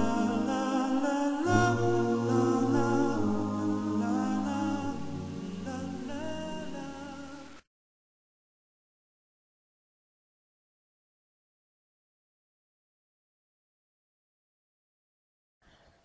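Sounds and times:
unaccompanied voices singing chords: 0.0 - 7.6.

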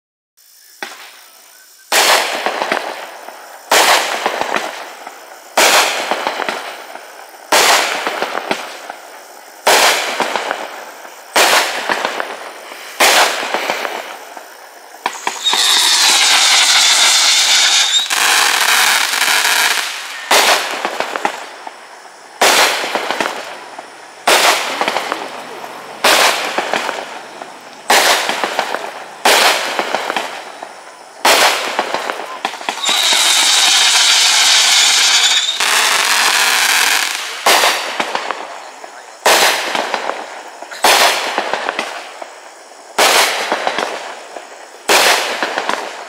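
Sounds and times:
firework hissing with warbling tones: 0.4 - 46.0
firework bangs: 0.7 - 46.0.

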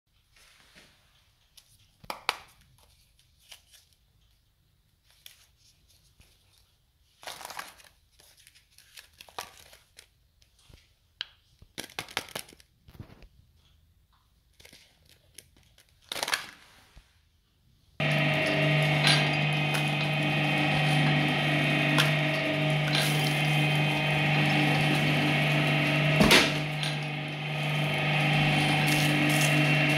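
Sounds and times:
plastic wrappers crinkling: 6.4 - 10.6, 14.5 - 16.7.

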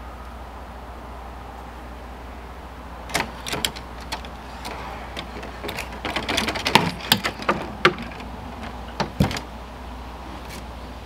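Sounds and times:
fishing rods and reels clattering: 3.1 - 9.5.

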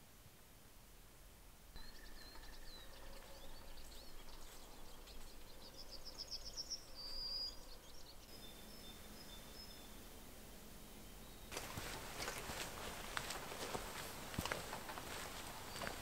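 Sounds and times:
bird trill: 1.8 - 10.1
small birds chirping: 1.8 - 16.0.

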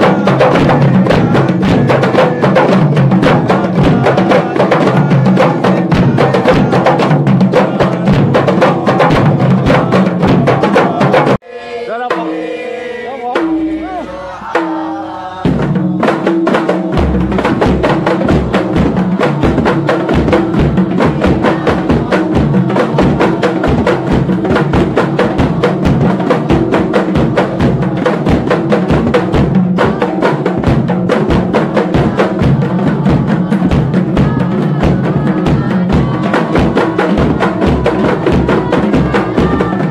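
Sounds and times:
frame drums played by hand: 0.0 - 11.4, 13.3 - 39.9
person singing: 0.0 - 16.2, 17.8 - 28.6, 29.7 - 30.6, 31.6 - 39.9.

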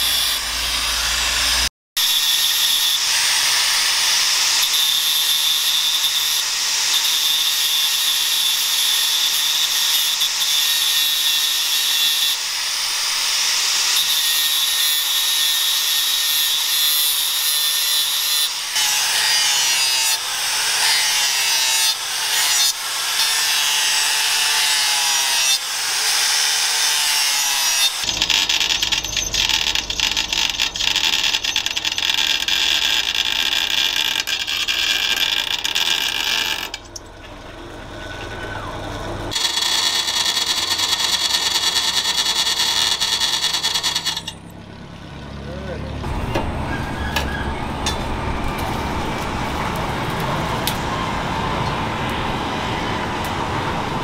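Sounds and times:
angle grinder grinding steel: 0.0 - 37.1, 37.9 - 44.5
drill press boring into steel: 28.0 - 37.0, 39.3 - 44.4.

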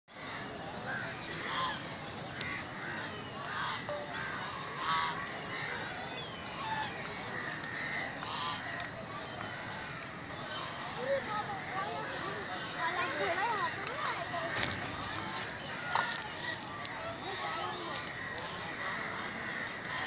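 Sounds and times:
geese honking: 1.4 - 5.9, 6.6 - 8.8.

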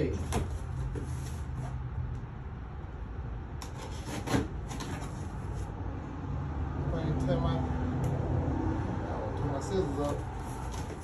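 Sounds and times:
cardboard boxes rubbing and scraping: 0.2 - 1.8, 3.8 - 5.7.

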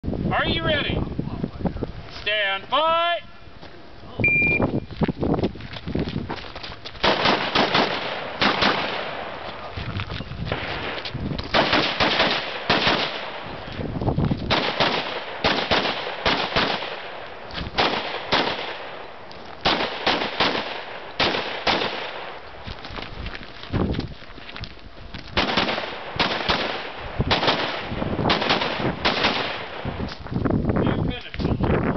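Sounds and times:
shot timer beep: 4.2 - 4.8
rifle shots: 7.0 - 9.4, 10.5 - 13.6, 14.5 - 22.4, 25.4 - 30.0.

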